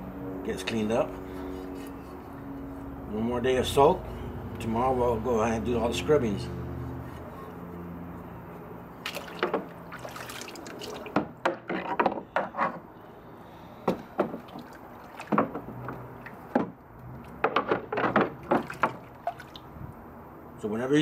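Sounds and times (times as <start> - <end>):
water splashing in plastic tub: 9.0 - 11.4, 14.0 - 19.8.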